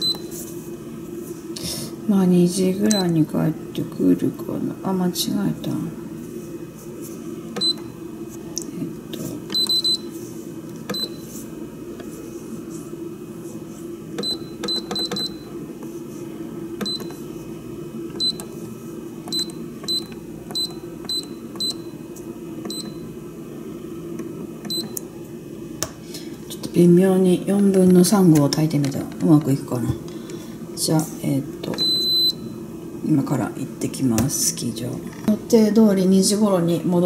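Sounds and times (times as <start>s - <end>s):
keypad beeps: 0.0s - 0.2s, 7.6s - 7.9s, 9.5s - 10.0s, 10.9s - 11.2s, 14.2s - 15.4s, 16.8s - 17.2s, 18.2s - 18.5s, 19.3s - 21.9s, 22.7s - 23.0s, 24.7s - 25.0s, 31.8s - 32.4s
low steady hum: 0.0s - 37.0s.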